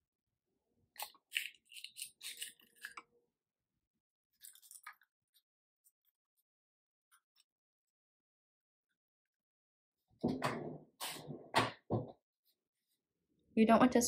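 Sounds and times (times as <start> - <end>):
eggshell cracking: 1.0 - 3.1.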